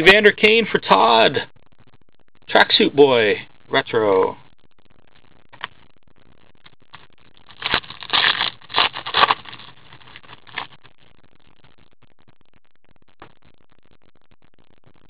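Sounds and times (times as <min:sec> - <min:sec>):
plastic crinkling and rustling: 0:06.9 - 0:10.8.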